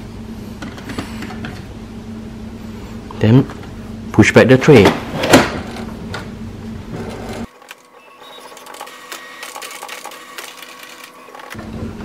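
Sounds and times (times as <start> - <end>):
printer mechanism whirring: 4.7 - 12.0.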